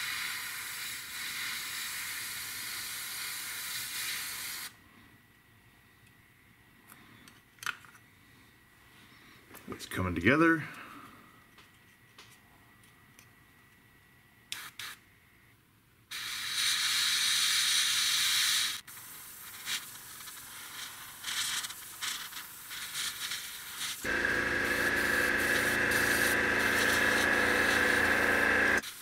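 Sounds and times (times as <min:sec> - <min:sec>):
airbrush spraying paint: 0:00.0 - 0:04.7, 0:14.5 - 0:15.0, 0:16.1 - 0:29.0
air compressor motor hum: 0:24.0 - 0:28.9.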